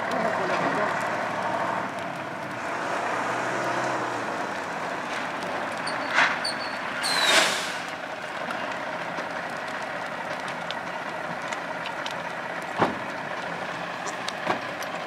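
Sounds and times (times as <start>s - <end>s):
truck engines running: 0.0s - 15.0s
short hissing bursts: 7.0s - 7.8s.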